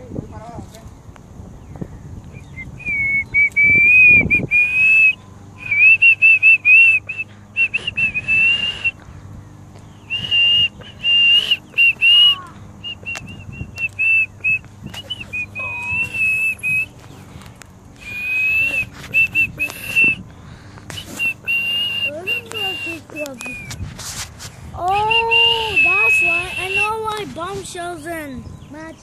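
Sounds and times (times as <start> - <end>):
person whistling a tune: 2.4 - 9.0, 10.1 - 16.9, 18.0 - 20.2, 20.9 - 23.8, 24.9 - 27.0.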